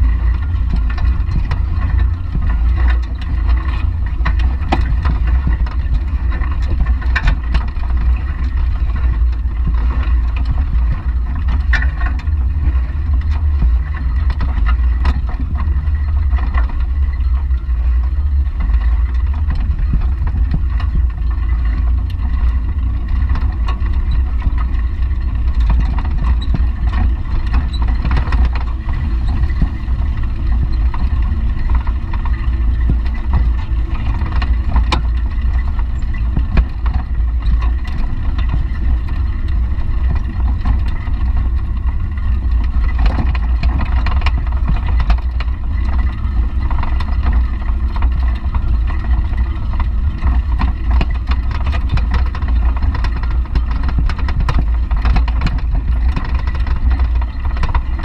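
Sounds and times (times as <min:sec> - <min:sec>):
bicycle rolling low rumble: 0:00.0 - 0:58.0
wind buffeting microphone: 0:00.0 - 0:58.0.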